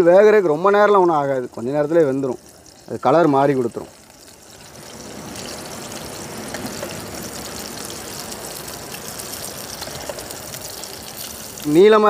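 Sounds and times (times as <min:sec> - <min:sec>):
prawn sizzling in oil: 0:00.0 - 0:12.0
small crackles: 0:03.8 - 0:11.8.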